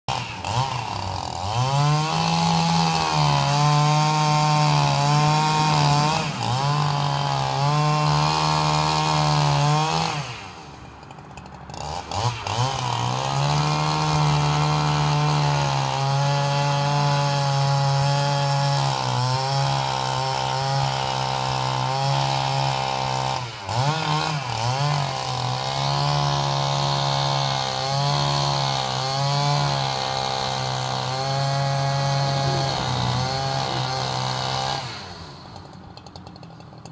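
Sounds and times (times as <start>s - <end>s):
chainsaw cutting wood: 0.1s - 36.9s.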